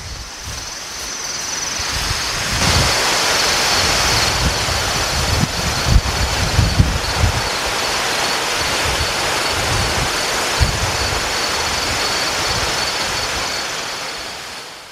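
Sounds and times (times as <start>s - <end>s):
wind gusts buffeting microphone: 0.0s - 14.0s
wind and rain: 0.0s - 14.9s.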